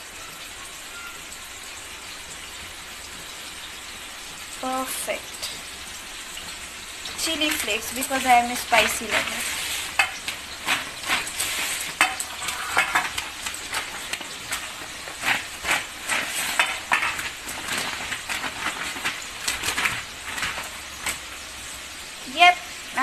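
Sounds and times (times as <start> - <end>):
fries scraping on paper: 4.2 - 23.0
paper rustling: 7.2 - 21.4.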